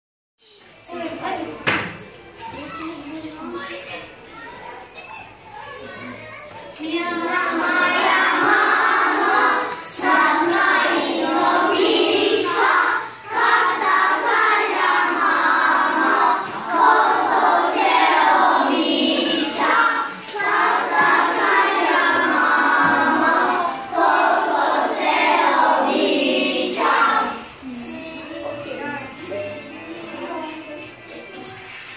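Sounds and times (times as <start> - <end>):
children singing together: 7.0 - 31.8.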